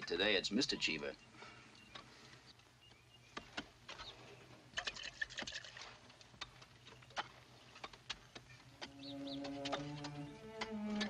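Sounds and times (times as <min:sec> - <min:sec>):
water splashing: 0:04.7 - 0:06.0.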